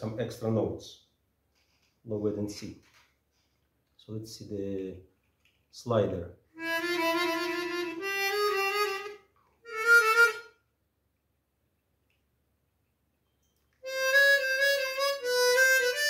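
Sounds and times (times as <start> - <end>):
harmonica single notes: 6.6 - 10.7, 13.8 - 16.0.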